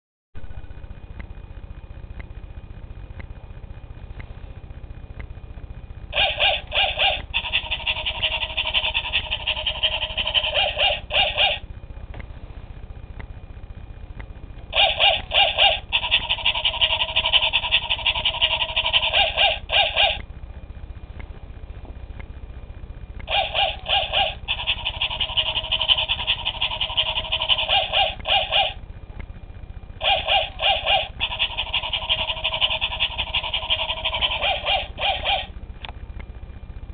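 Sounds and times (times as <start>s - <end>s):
toy dog electronic barks: 6.1s - 11.6s, 14.7s - 20.2s, 23.2s - 28.8s, 30.0s - 35.5s.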